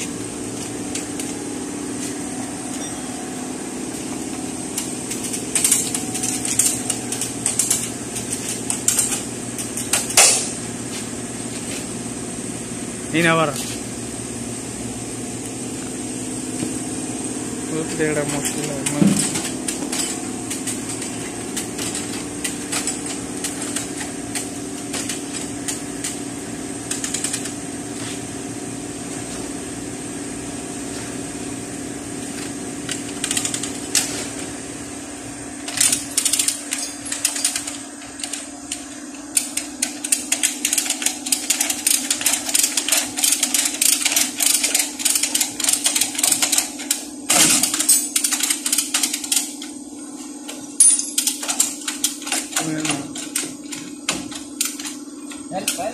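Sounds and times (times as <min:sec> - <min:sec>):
low machine hum: 0:00.0 - 0:55.9
chain hoist ratcheting clicks: 0:03.9 - 0:10.4, 0:18.1 - 0:26.2, 0:26.8 - 0:27.6, 0:32.9 - 0:34.1, 0:35.6 - 0:49.8, 0:50.5 - 0:55.9.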